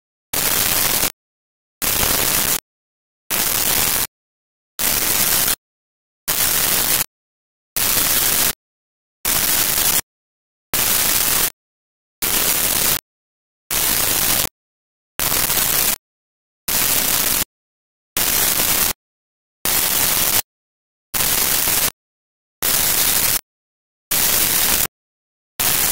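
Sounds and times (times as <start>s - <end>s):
white noise bursts: 1.8s - 2.6s.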